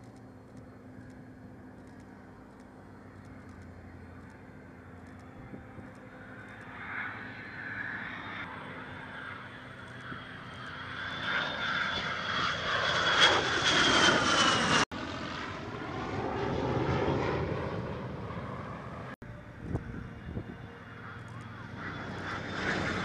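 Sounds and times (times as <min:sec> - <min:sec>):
aircraft engines flying past: 0:00.0 - 0:23.0.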